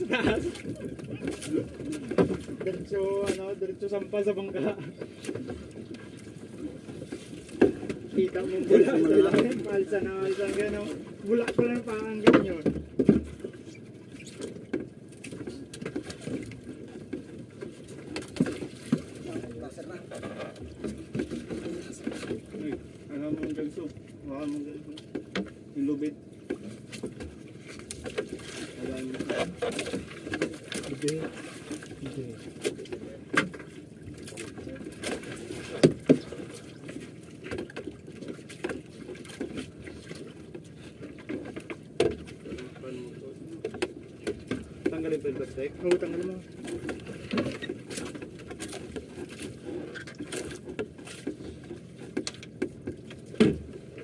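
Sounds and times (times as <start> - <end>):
water lapping against boat hull: 0.0 - 54.0
sharp knocks on boat: 7.0 - 8.3, 9.2 - 13.6, 32.6 - 36.7, 37.4 - 42.7, 50.2 - 54.0.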